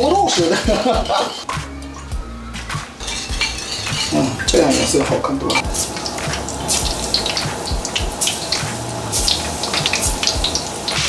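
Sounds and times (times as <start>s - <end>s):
chicken deep-frying in oil: 3.0s - 11.0s.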